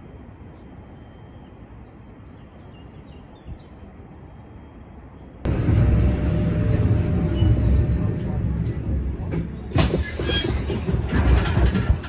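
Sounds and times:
low outdoor rumble: 5.4 - 12.0
moving vehicle interior rumble: 5.5 - 12.0.

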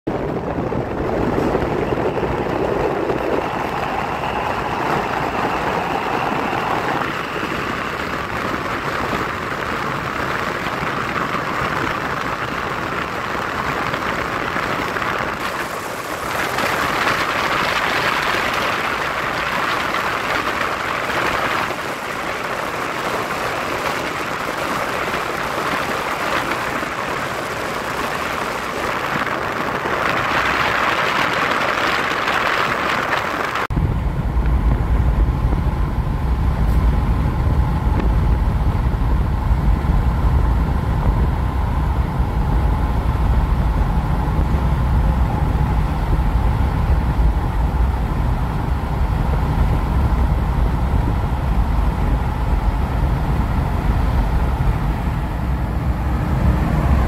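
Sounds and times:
rushing wind: 0.0 - 57.0
train wheels rolling on rails: 0.1 - 57.0.

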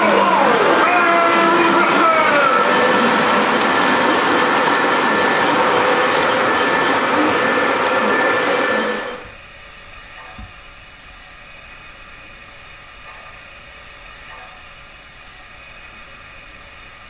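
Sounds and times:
model train wheels clattering: 0.0 - 9.3.

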